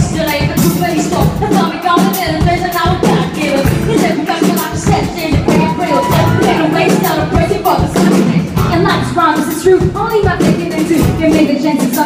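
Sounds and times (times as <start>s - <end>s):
live band playing slow groove: 0.3s - 12.0s
person singing: 3.0s - 9.4s.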